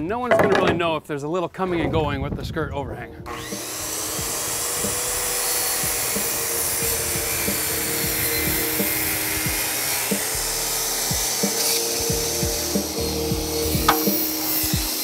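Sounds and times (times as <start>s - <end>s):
circular saw cutting wood: 3.2s - 15.0s.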